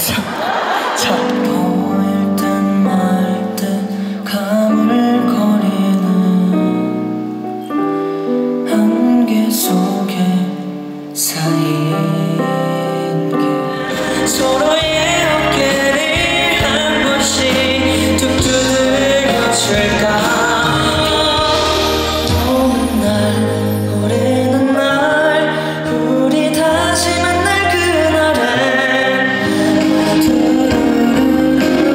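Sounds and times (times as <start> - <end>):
man singing ballad: 0.0 - 31.9
instrumental accompaniment: 12.0 - 31.9
low bass line: 14.4 - 24.5.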